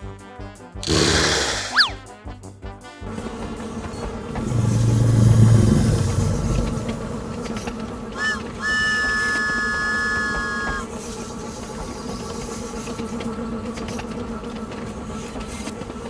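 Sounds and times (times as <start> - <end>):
cartoon train rumble: 0.8 - 2.1, 3.0 - 16.0
train whistle: 3.0 - 11.0.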